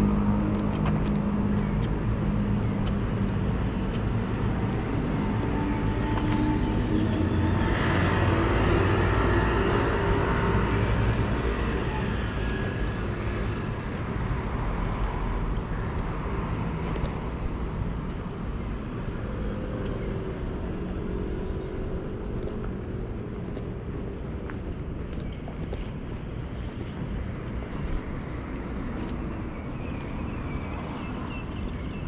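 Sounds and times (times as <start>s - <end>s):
road traffic: 0.0s - 32.0s
vehicle passing: 4.2s - 13.8s.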